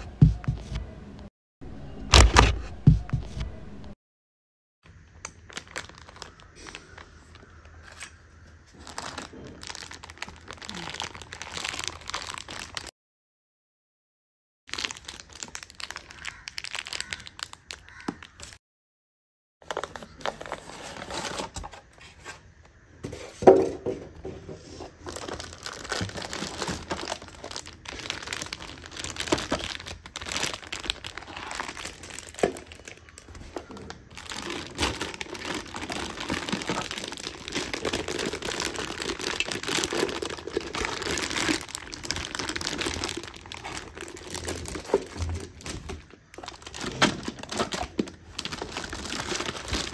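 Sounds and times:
plastic wrapping crinkling: 4.9 - 12.9, 14.7 - 18.6, 24.8 - 49.9.

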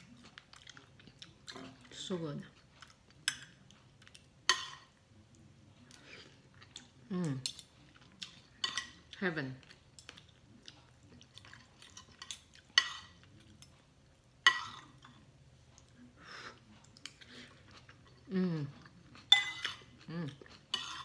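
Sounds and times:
quiet chewing: 0.0 - 21.0
cutlery clinking on a plate: 4.5 - 4.9, 8.6 - 9.0, 11.4 - 13.8, 14.4 - 15.2, 19.2 - 19.9, 20.7 - 21.0.

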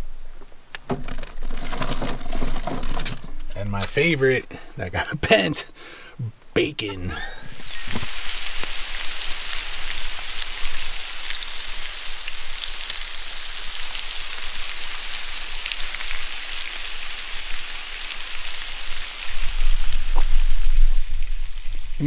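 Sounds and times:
food sizzling on griddle: 7.4 - 22.0.

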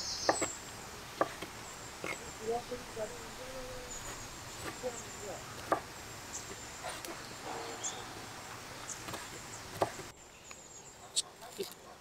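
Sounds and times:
knife chopping on wooden board: 1.2 - 2.2, 5.6 - 5.9, 9.0 - 10.1.

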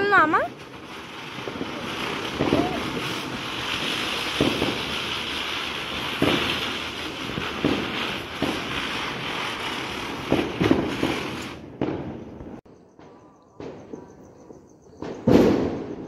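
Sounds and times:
firework hissing and crackling: 0.0 - 12.6
firework pops: 0.4 - 5.0, 6.1 - 9.0, 9.6 - 14.3, 14.9 - 16.0.

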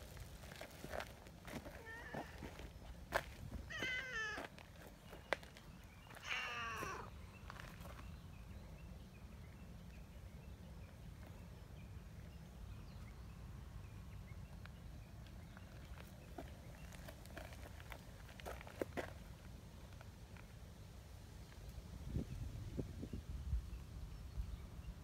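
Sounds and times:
cat meowing: 3.7 - 4.5, 6.2 - 7.1.

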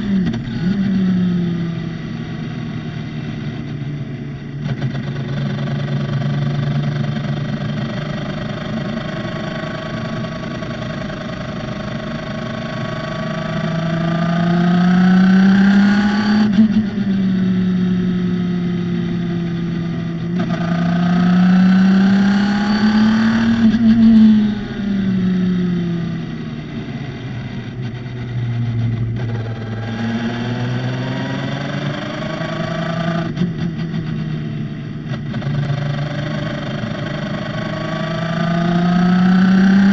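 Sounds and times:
race car engine accelerating: 19.1 - 39.9.

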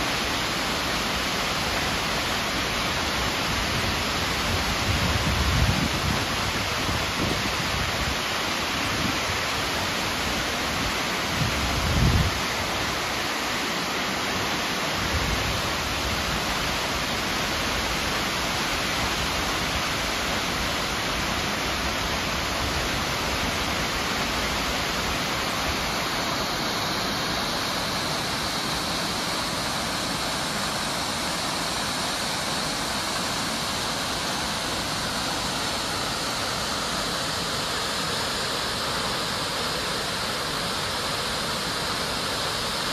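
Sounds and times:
waterfall rushing: 0.0 - 42.9.

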